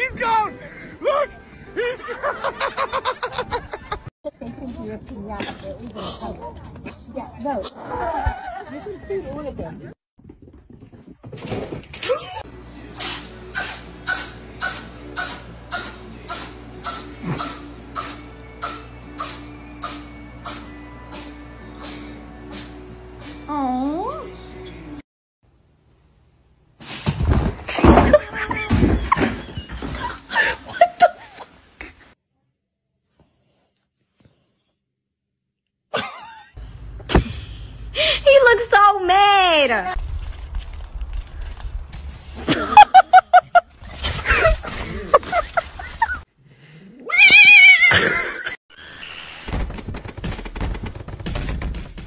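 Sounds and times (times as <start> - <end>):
people laughing and exclaiming: 1.0 - 4.0, 7.7 - 9.3
cat yowling: 47.0 - 48.1.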